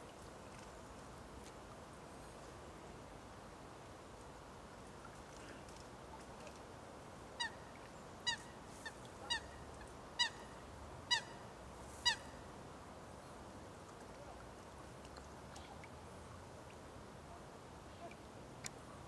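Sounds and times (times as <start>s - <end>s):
waterbird honking calls: 8.2s - 9.6s, 10.2s - 11.4s, 12.0s - 12.3s.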